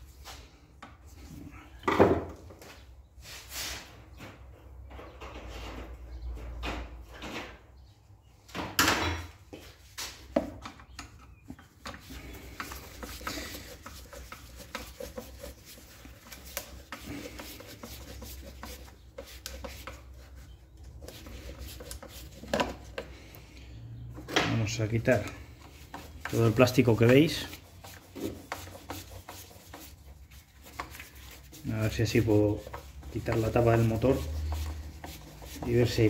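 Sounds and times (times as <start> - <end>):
hand tools on plastic casing: 10.6 - 23.2, 24.5 - 36.0.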